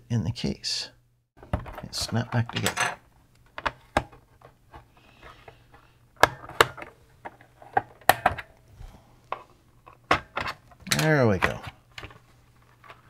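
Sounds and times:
plastic case clicks and snaps: 0:06.2 - 0:06.9.

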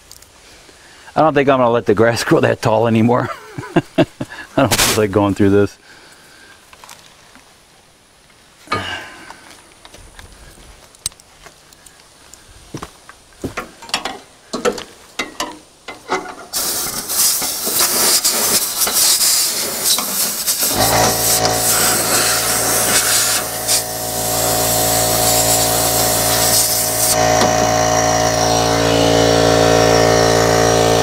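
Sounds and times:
compressed air hissing: 0:16.5 - 0:31.0
motor humming: 0:20.6 - 0:31.0.

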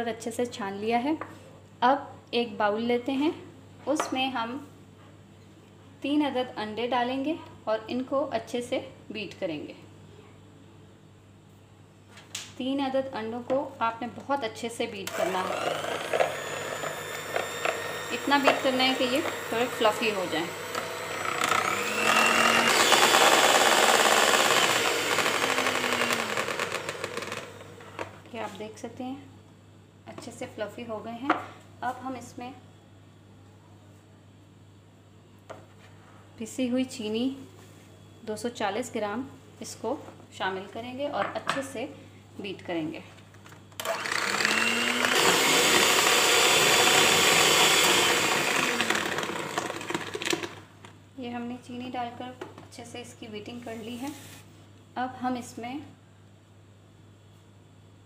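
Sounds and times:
electric hand mixer whisking eggs: 0:15.1 - 0:27.8, 0:43.8 - 0:50.6.

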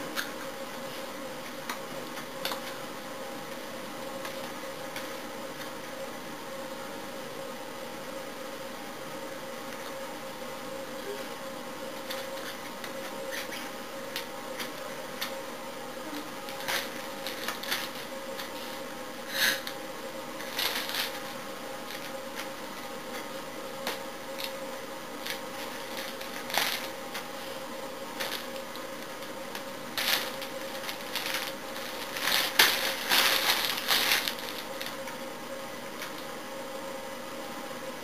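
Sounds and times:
faint steady hum: 0:00.0 - 0:38.0
plastic packaging crinkling: 0:16.5 - 0:18.9, 0:20.4 - 0:22.5, 0:25.2 - 0:27.4, 0:28.1 - 0:35.2.

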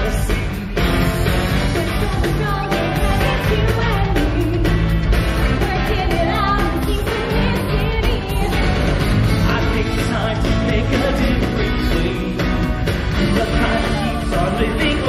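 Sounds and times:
heavy bass: 0:00.0 - 0:15.0
upbeat pop song: 0:00.0 - 0:15.0
person singing: 0:09.4 - 0:15.0.

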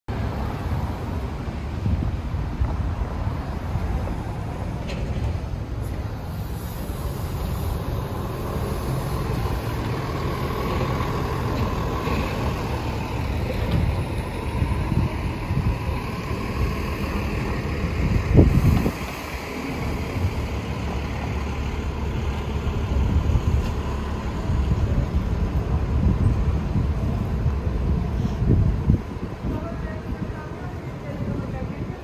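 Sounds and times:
bus engine hum: 0:00.1 - 0:32.0
traffic driving past: 0:00.1 - 0:32.0
wind rumble on microphone: 0:00.1 - 0:32.0.

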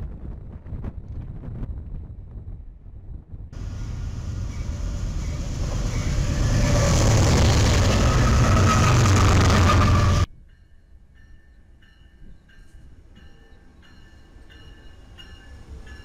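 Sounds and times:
wind noise on microphone: 0:00.0 - 0:10.5
diesel locomotive passing: 0:03.6 - 0:10.3.

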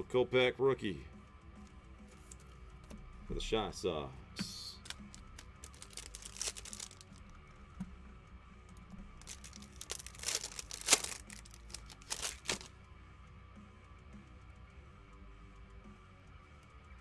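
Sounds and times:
foil wrapper tearing and crinkling: 0:04.8 - 0:07.2, 0:09.2 - 0:12.7.

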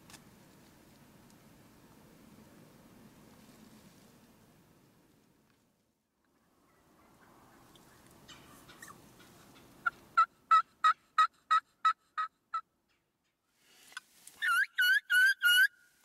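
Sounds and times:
wild turkeys yelping: 0:06.3 - 0:13.0, 0:14.4 - 0:15.9.

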